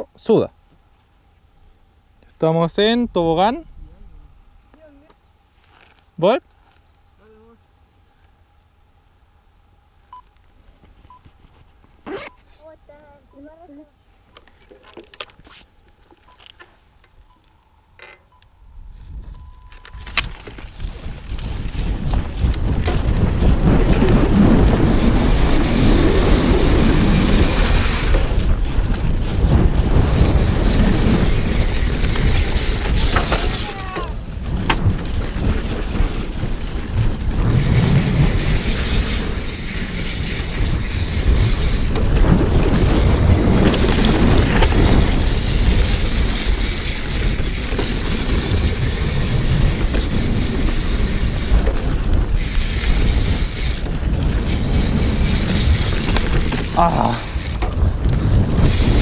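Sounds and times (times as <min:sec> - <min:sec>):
wind noise on microphone: 0:18.6 - 0:59.0
bike tyres rumbling over dirt: 0:20.0 - 0:59.0.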